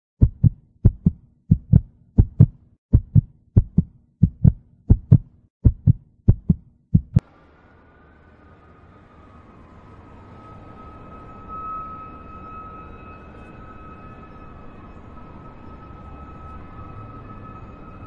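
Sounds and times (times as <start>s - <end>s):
heartbeat thumps: 0.2s - 7.2s.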